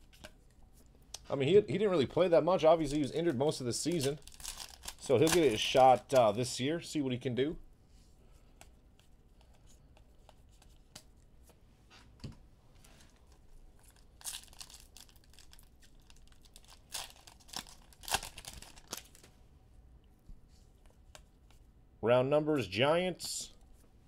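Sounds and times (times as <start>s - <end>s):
foil wrapper tearing and crinkling: 3.8s - 6.4s, 13.8s - 19.2s.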